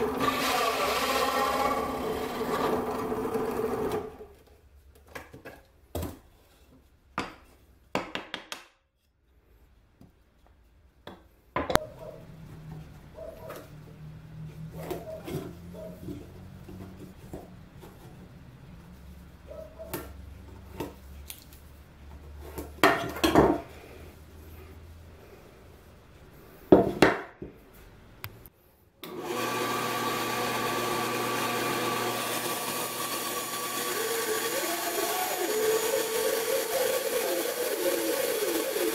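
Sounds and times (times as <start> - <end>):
band saw humming: 0.0 - 4.3, 29.1 - 38.9.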